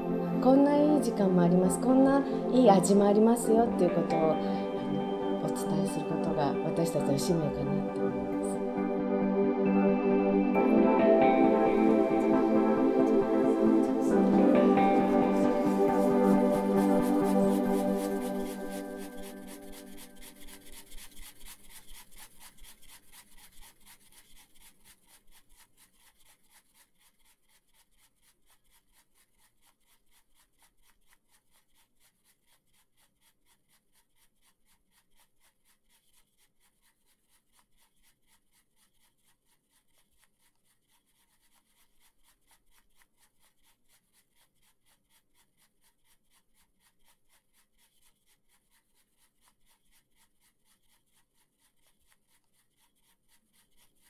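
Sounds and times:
music: 0.0s - 20.1s
tea whisk scratching in bowl: 0.0s - 54.0s.

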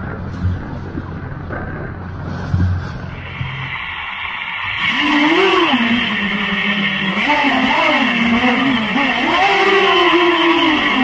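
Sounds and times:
steady rushing hiss: 0.0s - 11.0s
drone motors whining: 2.5s - 11.0s.

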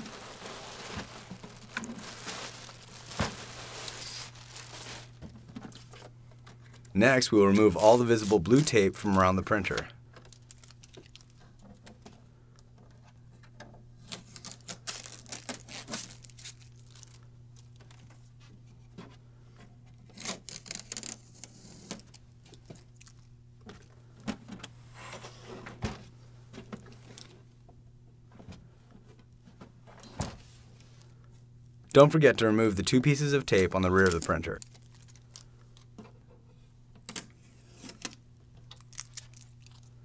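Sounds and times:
tape ripping and crinkling: 0.0s - 5.2s, 7.5s - 9.0s, 10.2s - 11.4s, 14.0s - 18.0s, 20.0s - 23.3s, 33.6s - 35.9s, 37.1s - 39.9s.

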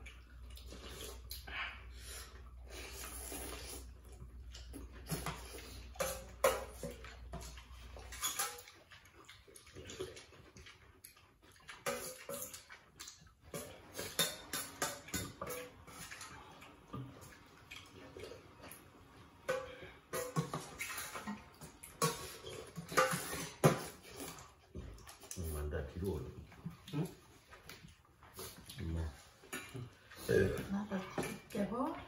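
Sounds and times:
people slurping and chewing: 0.0s - 32.0s
cutlery clinking on metal bowls: 5.1s - 9.0s, 11.6s - 12.8s, 13.5s - 16.4s, 19.4s - 25.2s, 29.4s - 31.7s.

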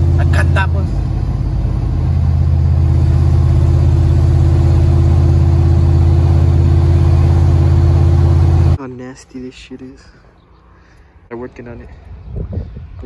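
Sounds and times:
truck engine droning: 0.0s - 8.8s
road noise: 0.0s - 13.0s.

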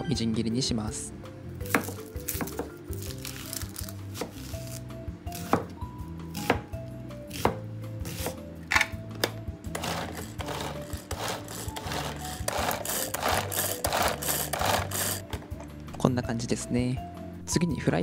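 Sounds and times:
background music: 0.0s - 18.0s
knife chopping onion on board: 1.6s - 2.8s, 4.1s - 8.4s
manual food chopper whirring: 8.1s - 15.6s.

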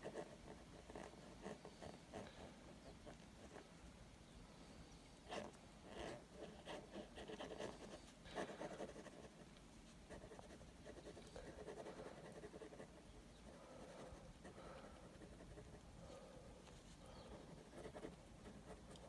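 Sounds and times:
pencil hatching strokes on paper: 10.1s - 14.3s.

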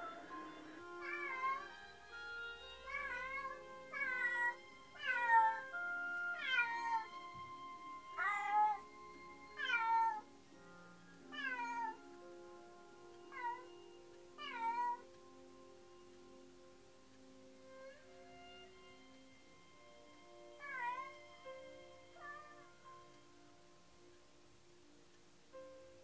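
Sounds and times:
soft background music: 0.0s - 26.0s
cat meowing: 1.0s - 1.7s, 2.9s - 5.7s, 6.3s - 7.1s, 8.2s - 8.8s, 9.6s - 10.2s, 11.3s - 12.0s, 13.3s - 13.7s, 14.4s - 15.0s, 20.6s - 21.2s, 22.2s - 22.6s.

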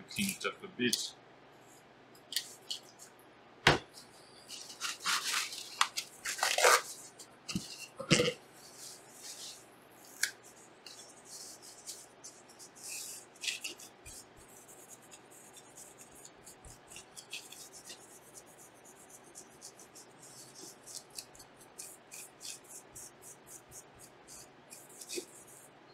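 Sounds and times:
paper towel rubbing: 4.5s - 7.9s, 8.6s - 25.6s.

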